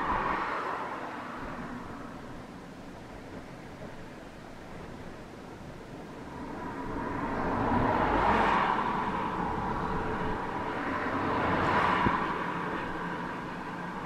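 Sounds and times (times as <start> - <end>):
cars passing: 0.0 - 14.0.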